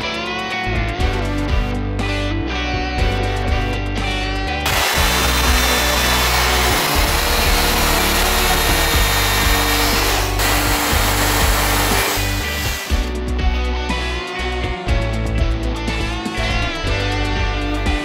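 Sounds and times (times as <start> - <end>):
rock music: 0.0 - 18.0
power drill boring holes: 4.6 - 13.1.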